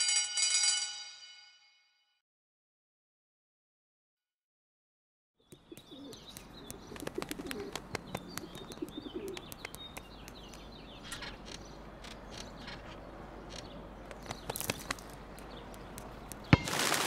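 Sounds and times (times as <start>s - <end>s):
beaks pecking on pavement: 5.4s - 17.0s
small birds chirping: 5.4s - 17.0s
pigeons cooing: 5.7s - 16.3s.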